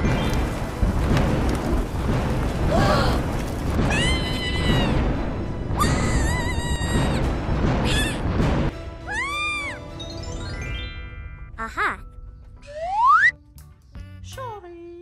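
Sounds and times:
cartoon rumbling rush: 0:00.2 - 0:08.7
background music: 0:04.7 - 0:15.0.

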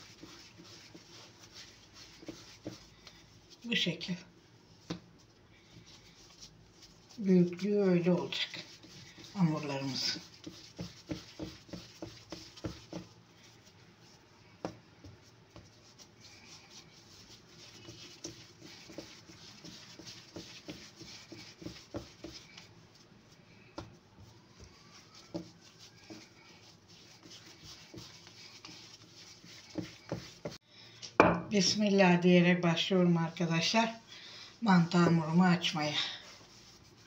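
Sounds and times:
hands kneading dough: 0:00.0 - 0:30.6, 0:31.6 - 0:37.0
soft pats and taps: 0:04.8 - 0:05.1.

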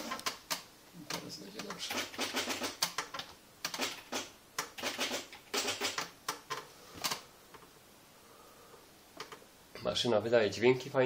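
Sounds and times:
electronic typewriter clattering: 0:00.0 - 0:00.6, 0:01.7 - 0:07.2.

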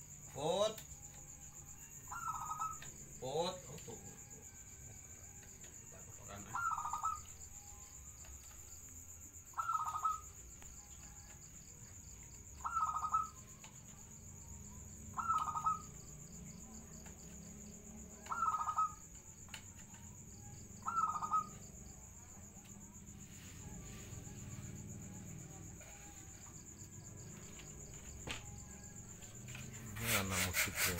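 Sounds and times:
dove cooing: 0:06.5 - 0:07.2, 0:09.6 - 0:10.3, 0:12.6 - 0:13.3, 0:15.1 - 0:15.9, 0:18.2 - 0:19.1, 0:20.8 - 0:21.6.

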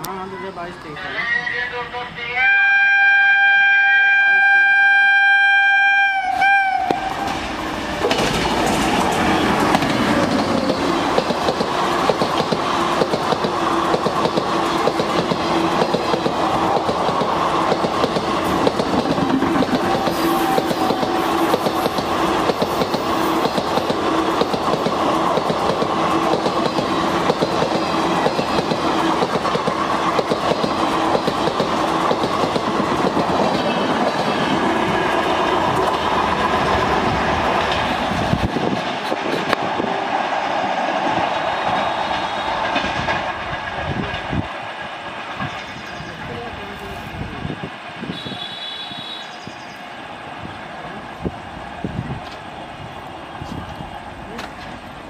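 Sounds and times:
train passing hum: 0:00.0 - 0:55.0
locomotive horn blast: 0:02.4 - 0:07.3, 0:41.5 - 0:42.9, 0:48.0 - 0:49.4
train wheels clattering over rail joints: 0:07.1 - 0:39.8.

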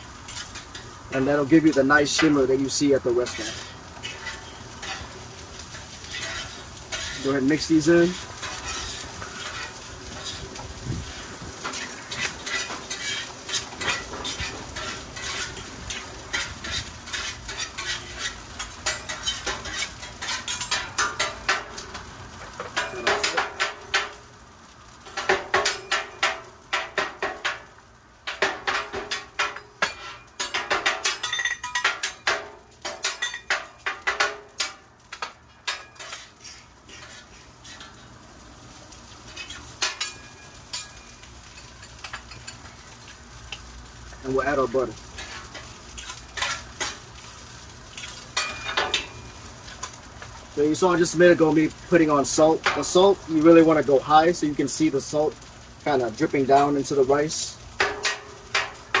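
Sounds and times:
rice sizzling: 0:00.0 - 0:59.0
spatula clacking on steel griddle: 0:03.2 - 0:10.8, 0:11.5 - 0:24.2, 0:25.0 - 0:38.1, 0:39.3 - 0:42.7, 0:45.2 - 0:47.1, 0:47.9 - 0:50.0, 0:57.7 - 0:59.0.

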